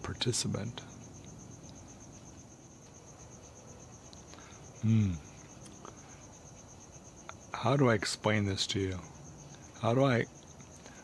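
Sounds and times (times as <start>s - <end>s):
crickets chirping: 0.0s - 11.0s
man humming briefly: 4.8s - 5.2s.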